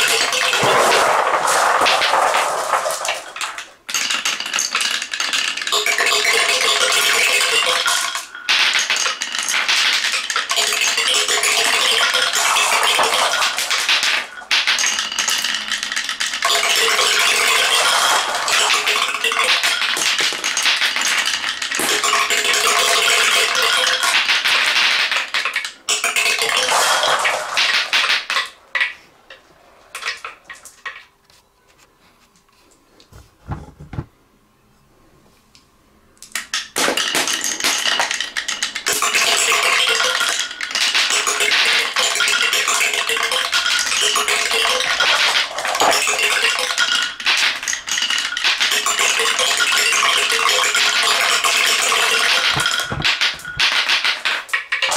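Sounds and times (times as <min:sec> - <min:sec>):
glass marbles rattling down wooden run: 0:00.0 - 0:31.1, 0:36.4 - 0:54.9.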